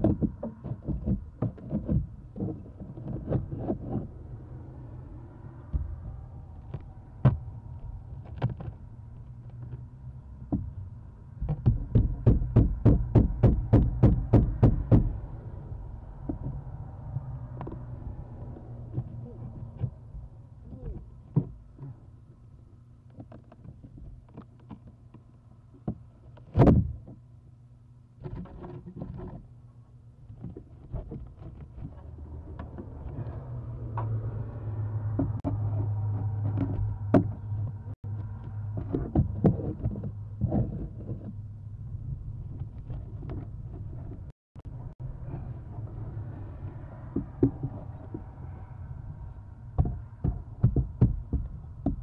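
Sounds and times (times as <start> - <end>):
low steady hum: 0.0 - 52.0
knocking on nest box: 11.4 - 15.2.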